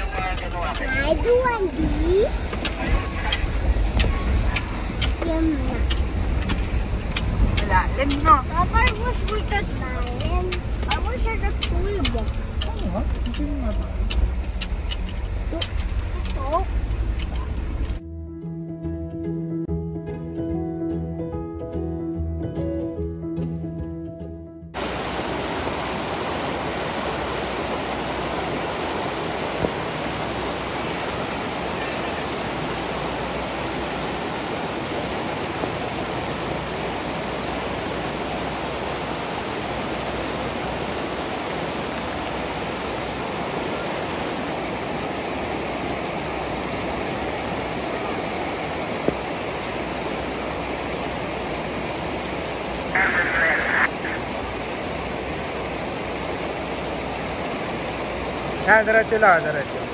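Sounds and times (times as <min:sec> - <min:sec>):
river water rushing: 0:00.0 - 0:18.0, 0:24.8 - 0:59.9
faint clicks: 0:02.5 - 0:18.0.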